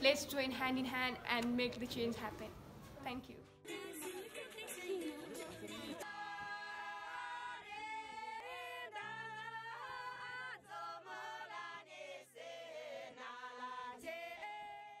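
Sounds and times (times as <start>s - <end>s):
women singing together: 3.7s - 15.0s.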